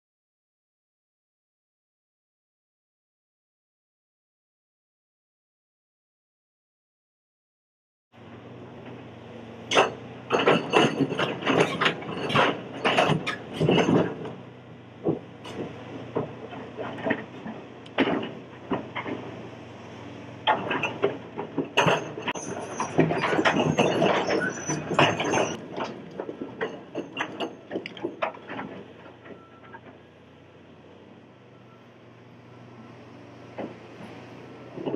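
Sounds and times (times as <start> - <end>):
excavator engine hum: 8.2 - 34.9
rocks clattering against bucket: 20.5 - 29.9.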